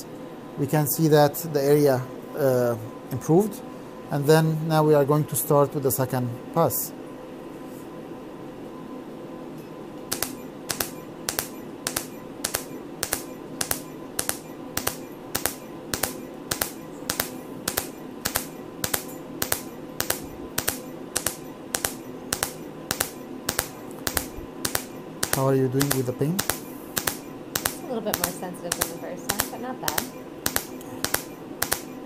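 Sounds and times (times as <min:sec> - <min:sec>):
steady machine hum: 0:00.0 - 0:32.0
laser snapping clicks: 0:10.1 - 0:32.0.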